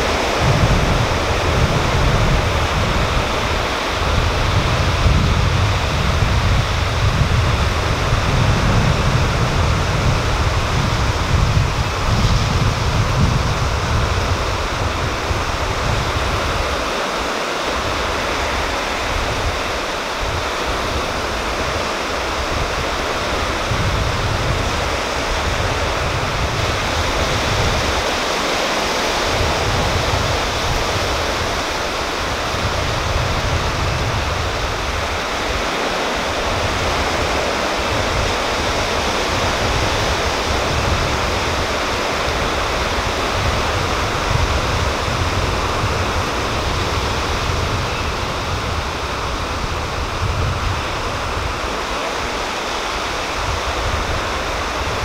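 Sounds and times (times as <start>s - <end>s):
sea waves on rocky shore: 0.0s - 55.0s.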